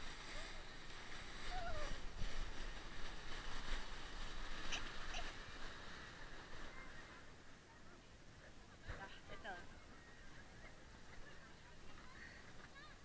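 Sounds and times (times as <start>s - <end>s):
toboggan scraping over snow: 0.0s - 7.4s.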